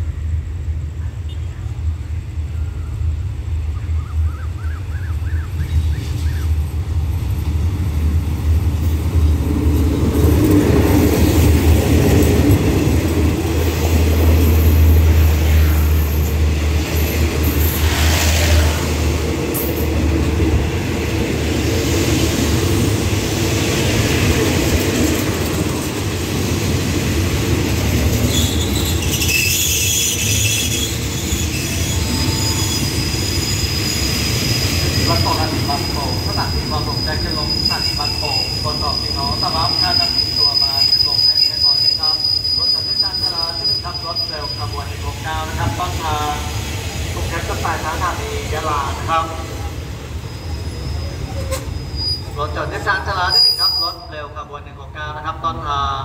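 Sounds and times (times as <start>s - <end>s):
train coaches rolling by: 0.0s - 56.0s
wheel and brake squeal: 28.2s - 45.0s, 50.0s - 54.2s.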